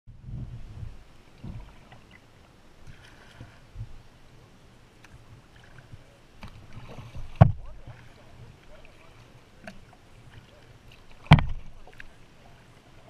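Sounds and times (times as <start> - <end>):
soft low thumps: 0.1 - 1.8, 3.7 - 4.1, 7.2 - 7.9, 11.2 - 12.0
paddle splashes: 0.5 - 13.0.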